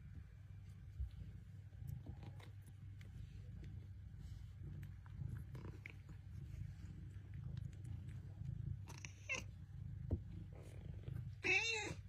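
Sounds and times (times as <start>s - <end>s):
cats purring: 0.0s - 12.0s
cat meowing: 11.4s - 12.0s.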